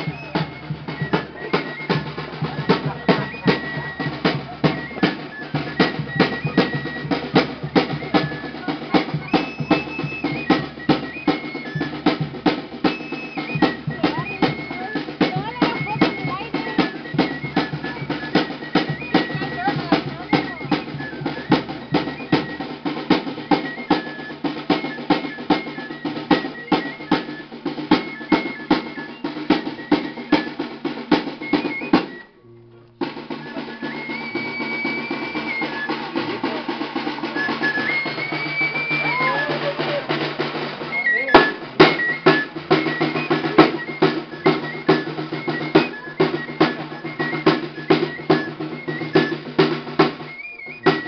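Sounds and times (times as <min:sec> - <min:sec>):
hand drum beating dance rhythm: 0:00.0 - 0:51.0
high piping tune: 0:00.0 - 0:51.0.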